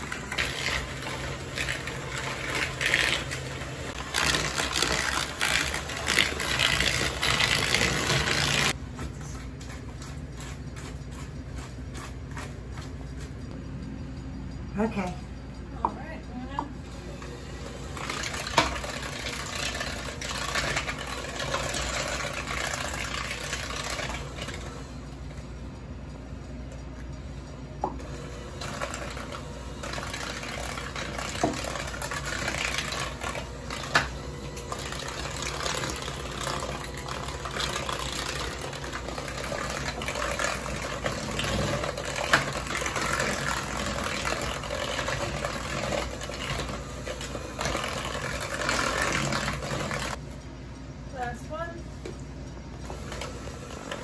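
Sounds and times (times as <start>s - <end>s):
electric hand mixer running: 0.0s - 8.8s, 17.0s - 25.1s, 27.9s - 50.2s, 52.8s - 54.0s.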